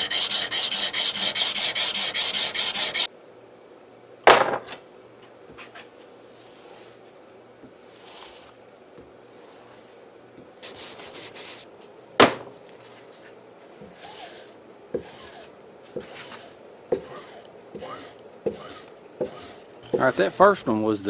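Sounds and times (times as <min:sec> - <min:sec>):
abrasive rasping on steel blade: 0:00.0 - 0:03.1, 0:17.0 - 0:20.4.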